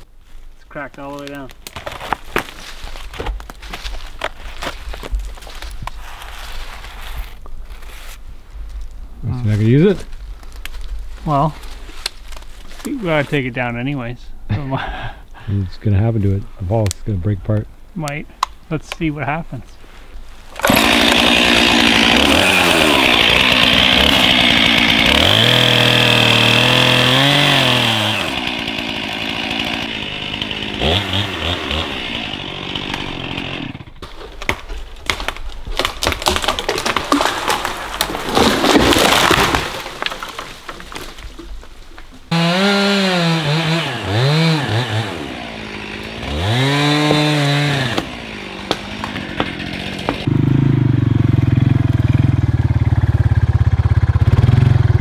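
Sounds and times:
wood cracking and snapping: 0:00.9 - 0:06.0, 0:10.1 - 0:11.0, 0:11.6 - 0:13.0, 0:20.5 - 0:50.3
chainsaw cutting wood: 0:20.5 - 0:41.2, 0:42.3 - 0:52.1
tree crashing down: 0:20.5 - 0:50.8
chainsaw revving: 0:20.6 - 0:34.0, 0:42.3 - 0:55.0
atv engine idling: 0:50.3 - 0:55.0.

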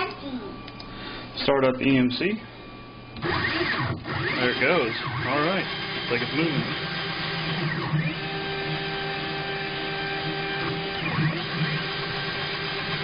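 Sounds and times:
stepper motor whine: 0:03.0 - 0:13.0.

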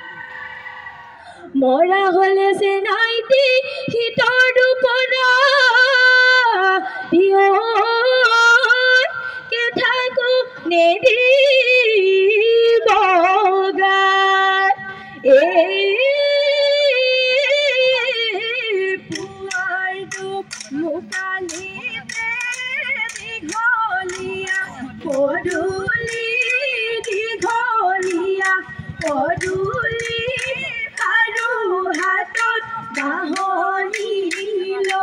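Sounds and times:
woman singing: 0:01.6 - 0:35.0
light percussion clicks: 0:19.1 - 0:35.0.

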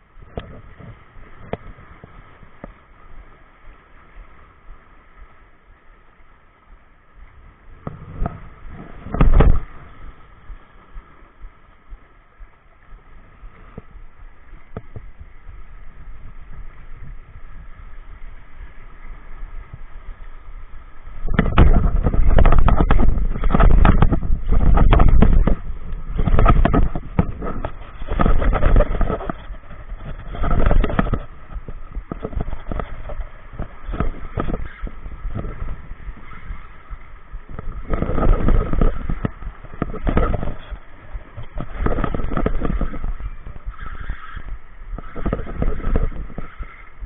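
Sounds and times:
knocks and buffeting on microphone: 0:00.0 - 0:05.3, 0:07.2 - 0:47.0
small waves washing on rocks: 0:00.0 - 0:47.0.

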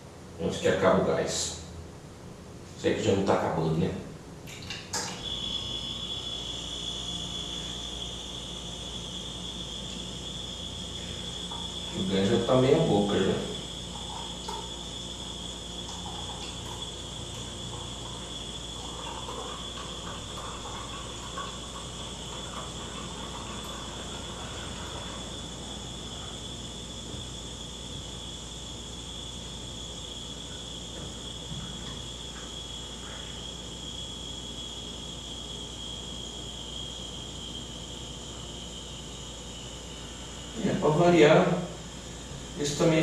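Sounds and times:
high-pitched whine: 0:00.0 - 0:43.0
beer trickling into glass: 0:04.5 - 0:34.3.

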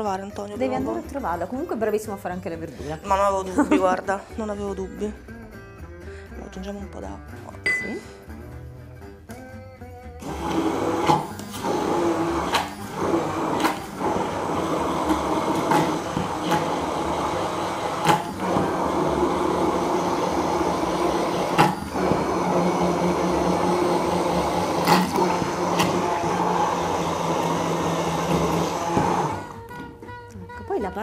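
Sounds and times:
immersion blender motor whine: 0:10.2 - 0:29.6.

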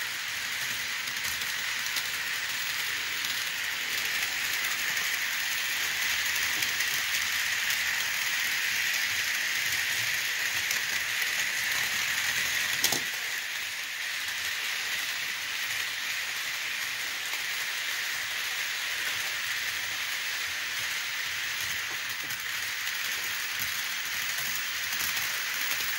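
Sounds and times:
model train running on track: 0:00.0 - 0:25.9.

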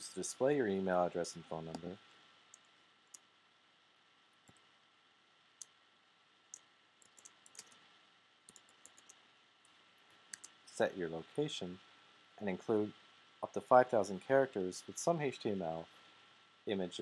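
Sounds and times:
keyboard keystrokes: 0:06.5 - 0:07.8, 0:08.5 - 0:09.2.

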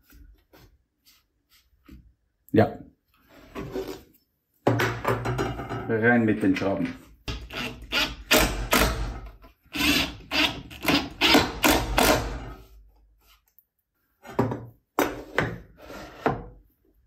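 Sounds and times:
cordless drill driving screws: 0:07.4 - 0:09.1, 0:09.7 - 0:12.4.

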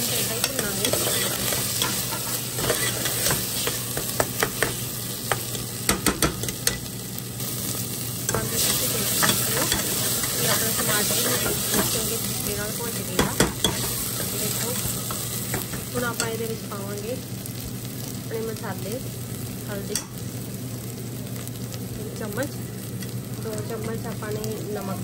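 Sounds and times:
masala sizzling in oil: 0:00.0 - 0:25.0
steel spoon scraping pot: 0:00.4 - 0:03.8.

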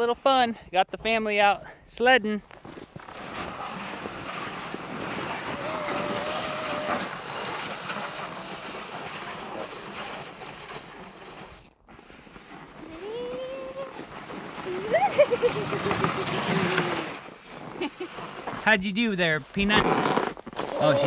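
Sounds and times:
sled sliding over snow: 0:02.5 - 0:21.0
high-pitched vocal sounds: 0:05.6 - 0:07.1, 0:12.9 - 0:14.0.

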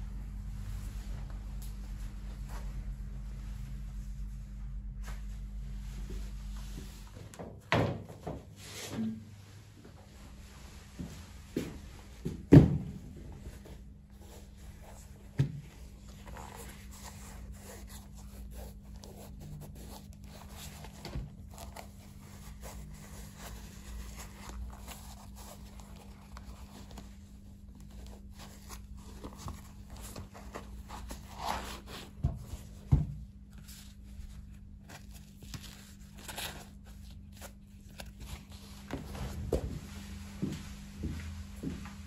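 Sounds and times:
steady low hum: 0:00.0 - 0:42.0
suede shoes rustling and scraping: 0:13.3 - 0:42.0.

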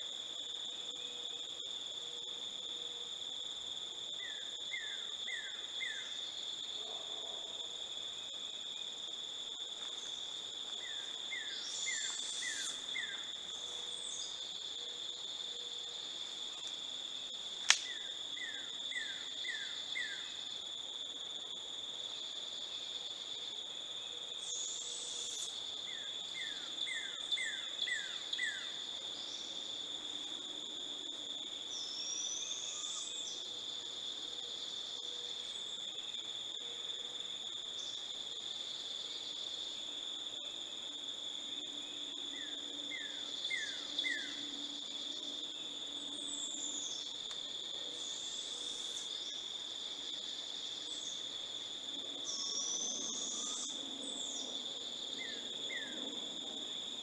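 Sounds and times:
insects trilling: 0:00.0 - 0:57.0
sharp click: 0:17.6 - 0:17.9.

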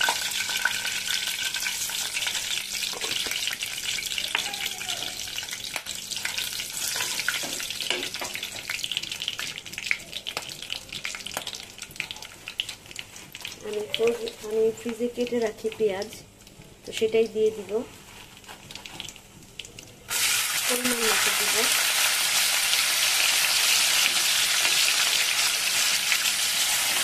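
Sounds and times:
spices sizzling in hot oil: 0:00.0 - 0:27.0
wooden spatula stirring: 0:17.8 - 0:19.6.

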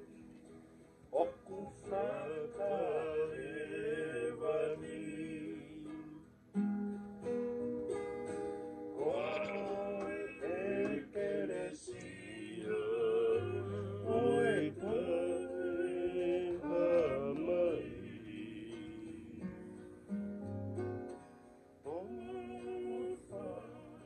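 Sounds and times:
strummed acoustic guitars: 0:00.0 - 0:24.0
ukulele: 0:00.0 - 0:24.0
men singing together: 0:01.2 - 0:06.0, 0:09.0 - 0:19.8, 0:21.9 - 0:24.0.

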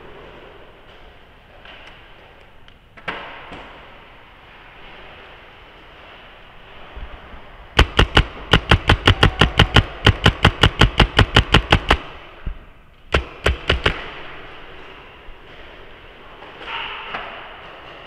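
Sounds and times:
paintball marker firing: 0:07.8 - 0:12.2, 0:13.1 - 0:14.2.

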